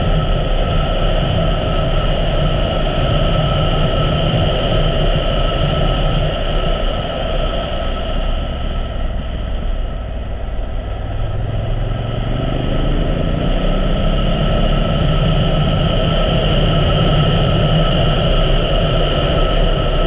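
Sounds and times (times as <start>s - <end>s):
motorcycle engine accelerating: 7.6s - 20.0s.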